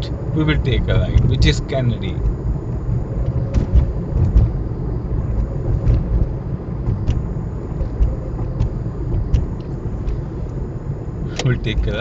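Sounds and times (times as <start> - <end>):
engine and tyre rumble: 0.0 - 12.0
faint ticks: 6.9 - 10.6.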